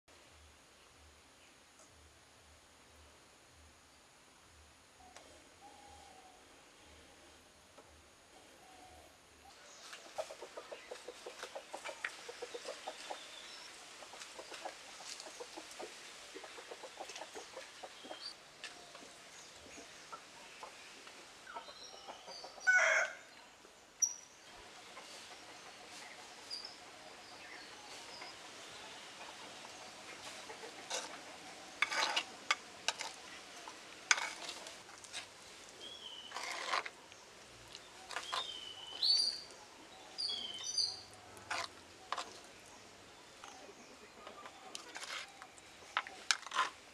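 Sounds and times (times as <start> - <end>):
chickens calling: 9.8 - 18.4, 19.0 - 23.2, 24.5 - 42.5.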